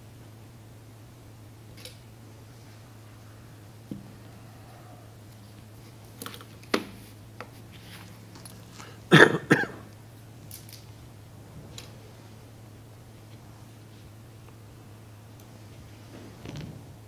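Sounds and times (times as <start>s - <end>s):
low electrical hum: 0.0s - 17.0s
person coughing: 9.1s - 9.9s.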